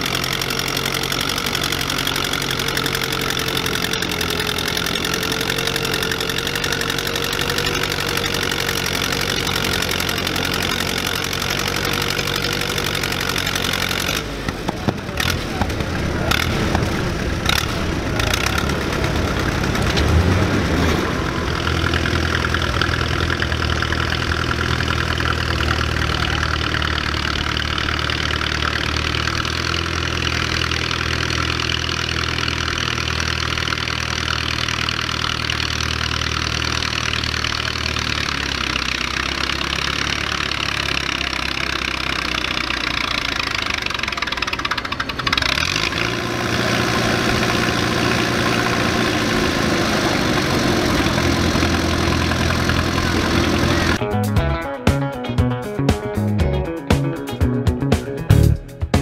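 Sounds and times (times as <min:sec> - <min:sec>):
tractor engine idling: 0:00.0 - 0:54.0.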